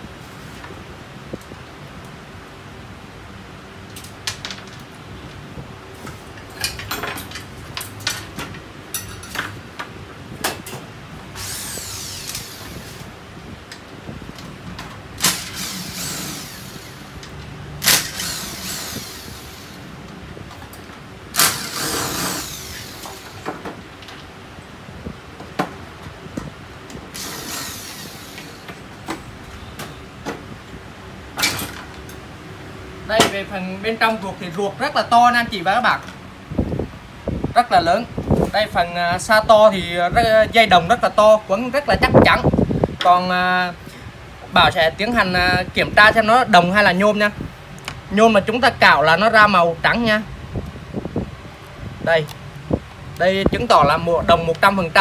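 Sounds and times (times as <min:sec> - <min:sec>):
metal parts clicking and knocking: 0:06.4 - 0:09.6, 0:14.8 - 0:19.8, 0:20.6 - 0:24.3
rasping slide of parts: 0:11.3 - 0:13.1, 0:15.2 - 0:20.0, 0:20.8 - 0:23.7, 0:26.9 - 0:30.0
rough scraping and rustling: 0:21.4 - 0:23.4.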